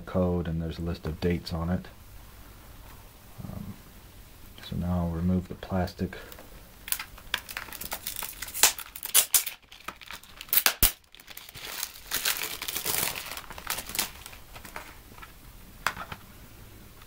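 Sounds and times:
cellophane tearing and crinkling: 6.8 - 15.4.

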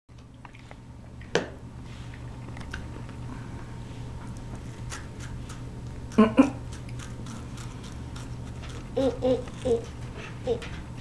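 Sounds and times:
steady low hum: 0.1 - 11.0
child chewing cookie: 4.3 - 10.0.

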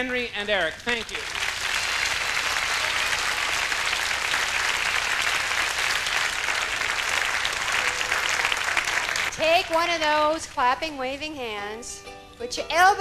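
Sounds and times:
audience applauding: 0.9 - 9.8.

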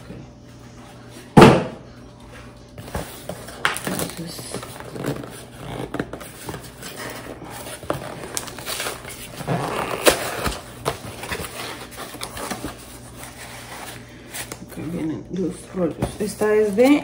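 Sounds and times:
packaging rustling and crinkling: 2.8 - 14.7.

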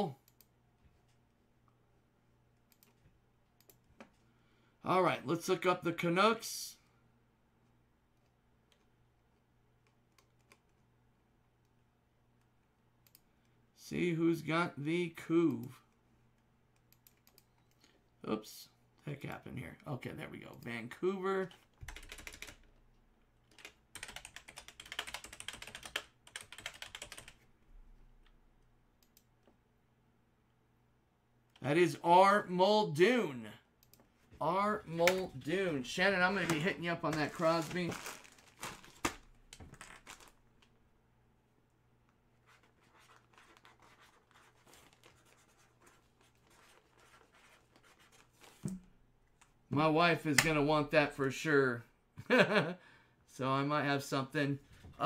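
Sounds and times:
computer keyboard typing: 21.8 - 22.7, 23.5 - 27.4.

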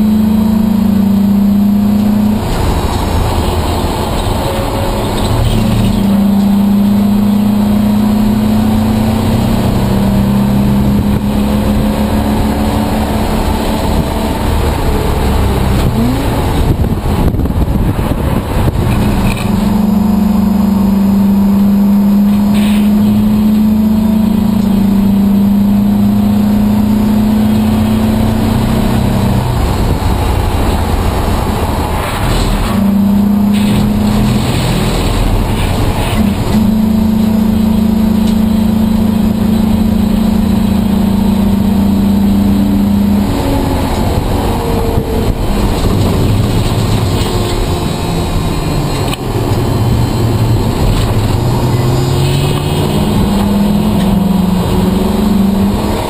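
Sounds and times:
race car engine: 0.0 - 56.0
road noise: 0.0 - 56.0.

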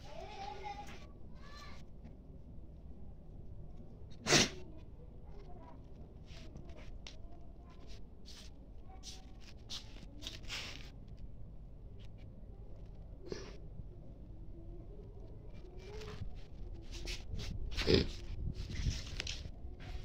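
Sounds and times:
person sneezing: 4.2 - 4.6.

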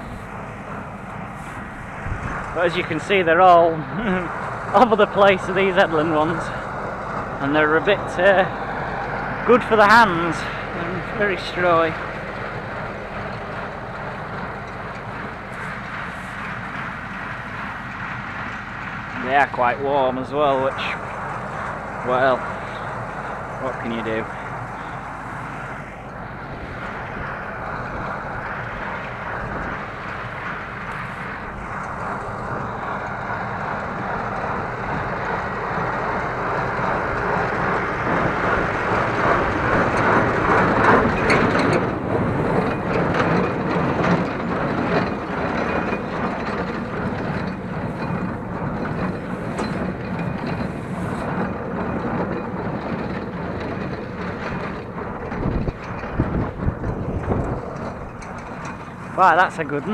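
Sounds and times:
tractor engine: 0.0 - 59.9
baler mechanical din: 11.0 - 59.9.

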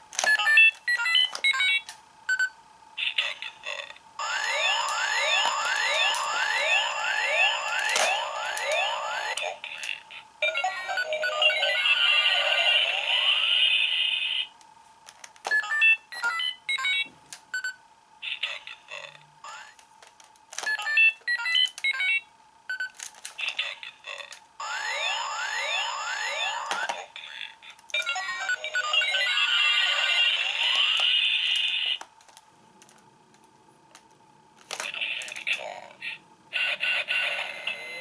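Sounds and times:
alarm-like electronic tone: 4.2 - 9.4, 24.6 - 26.7.

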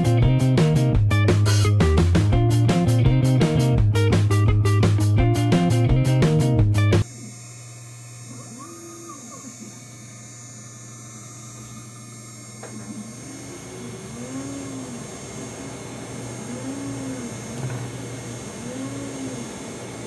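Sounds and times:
router spindle hum and whine: 7.0 - 20.0
stepper motors pitch rising and falling: 7.0 - 20.0.

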